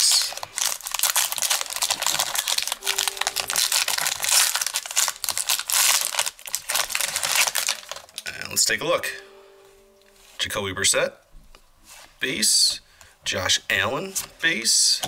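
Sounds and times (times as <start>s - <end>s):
plastic wrapper crinkling: 0.0s - 8.7s.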